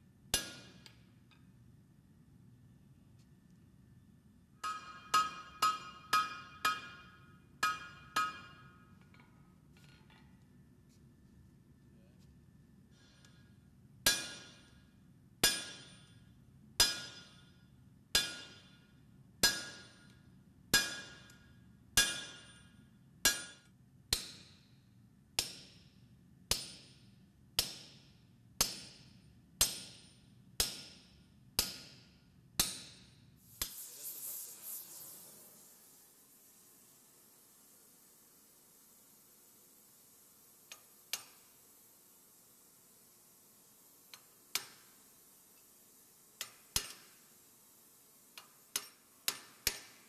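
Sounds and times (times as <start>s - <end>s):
hammer striking anvil: 0.3s - 0.9s, 4.6s - 8.9s, 14.1s - 14.7s, 15.4s - 16.1s, 16.8s - 17.4s, 18.2s - 18.7s, 20.8s - 21.4s, 22.0s - 22.7s, 23.3s - 24.4s
short hiss: 33.4s - 38.4s.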